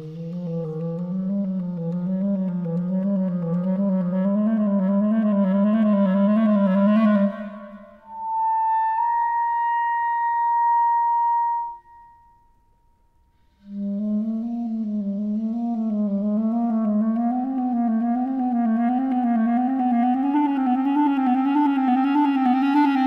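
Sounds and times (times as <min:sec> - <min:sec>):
solo clarinet playing: 0:00.0 - 0:12.2, 0:13.7 - 0:23.0.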